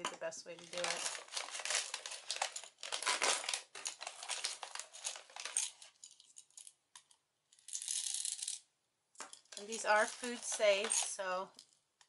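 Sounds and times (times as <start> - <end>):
plastic bag crinkling: 0.6 - 6.6, 9.4 - 11.7
candies rattling and clicking: 0.6 - 8.6, 9.2 - 11.8.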